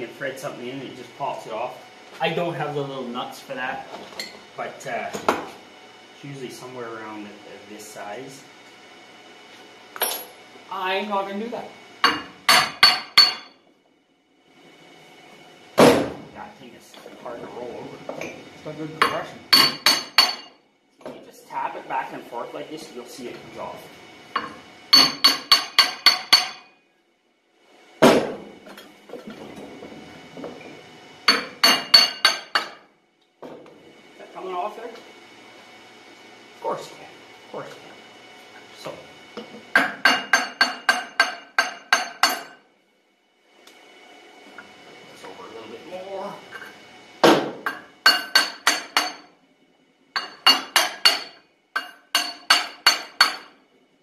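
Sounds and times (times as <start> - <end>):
hammer striking metal: 12.0 - 13.6, 19.0 - 20.6, 24.4 - 26.7, 31.3 - 32.8, 39.8 - 42.6, 47.3 - 49.3, 50.2 - 53.5.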